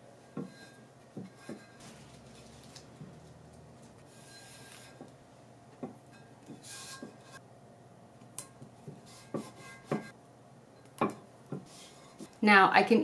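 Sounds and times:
tape being pulled: 1.8 - 5.0.

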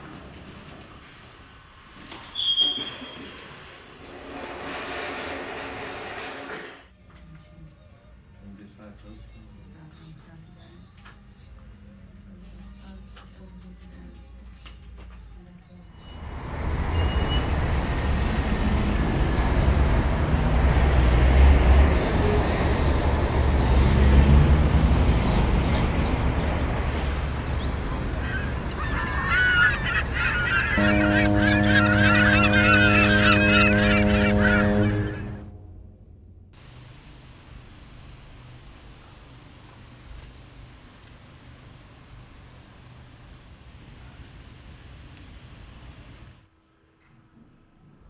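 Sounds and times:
loud outdoor rumble: 16.2 - 40.0
chatter of bird-like calls: 27.6 - 35.4
held honking tone: 28.2 - 36.5.

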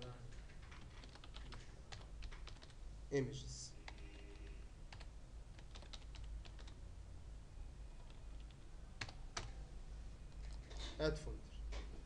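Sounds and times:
computer keyboard typing: 0.0 - 2.8, 3.9 - 6.8, 8.0 - 9.6, 10.3 - 10.8.

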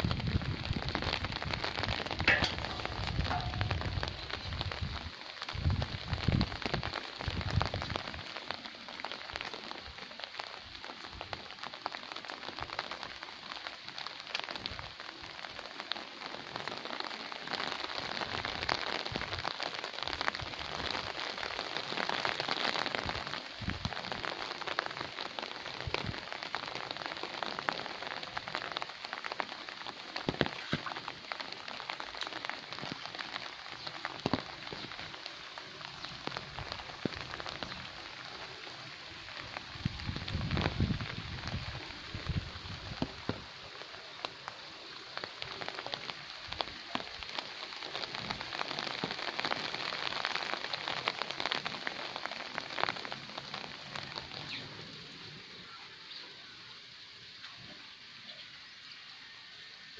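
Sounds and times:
rain falling on plants: 0.0 - 59.9.

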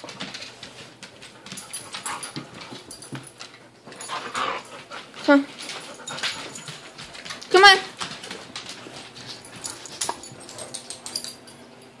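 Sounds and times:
dogs scuffling on wooden floor: 0.0 - 11.9.

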